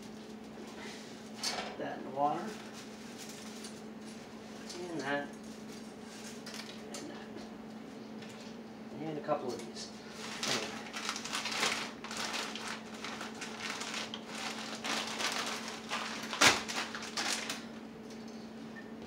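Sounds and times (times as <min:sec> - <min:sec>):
plastic package crinkling: 0:10.2 - 0:17.8.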